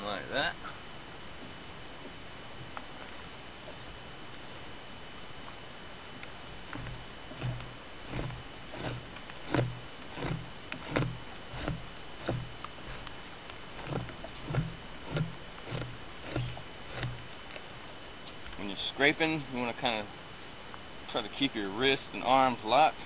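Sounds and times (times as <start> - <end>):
blade scraping hide: 6.6 - 17.6.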